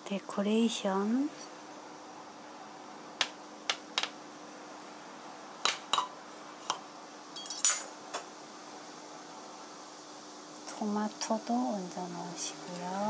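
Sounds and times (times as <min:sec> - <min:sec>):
faint steady hum: 0:00.0 - 0:13.0
knife clinking on ceramic bowl: 0:07.4 - 0:07.9.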